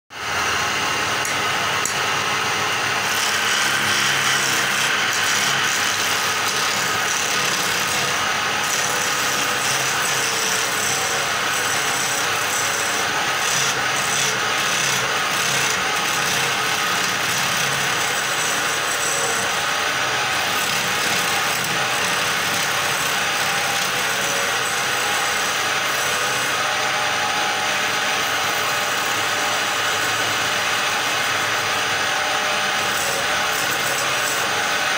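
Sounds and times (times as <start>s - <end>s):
chisel scraping on wood lathe: 2.9s - 26.6s, 32.8s - 34.9s.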